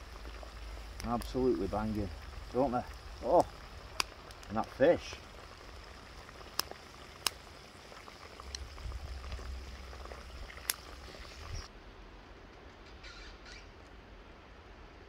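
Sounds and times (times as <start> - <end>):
oil sizzling and bubbling: 0.0 - 11.7
sharp oil pops: 10.6 - 10.9.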